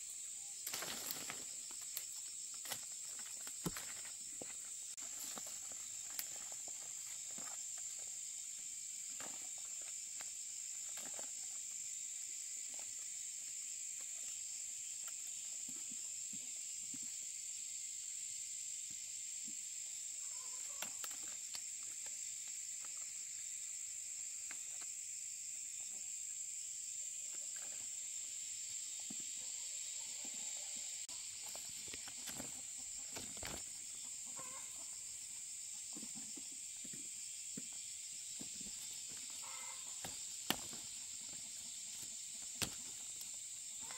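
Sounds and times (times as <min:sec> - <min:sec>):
insects buzzing: 0:00.0 - 0:43.9
chicken clucking: 0:29.5 - 0:35.0, 0:39.3 - 0:42.8.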